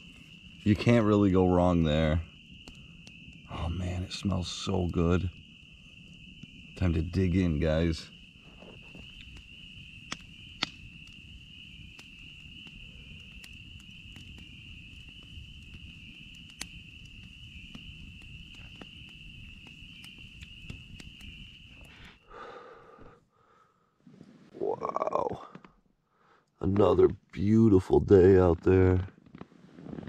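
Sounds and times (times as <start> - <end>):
small sharp clicks and pops: 2.5 - 3.4, 8.6 - 22.0.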